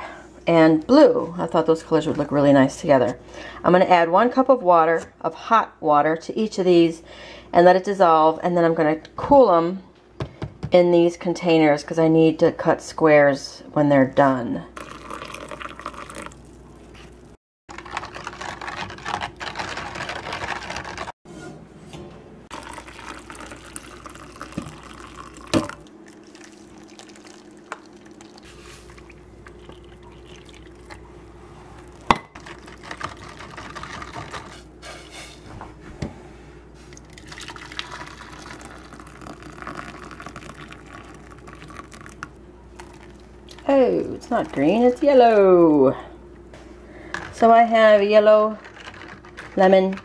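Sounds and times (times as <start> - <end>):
hot water pouring and splashing: 14.8 - 17.3, 22.5 - 31.0, 37.0 - 45.0.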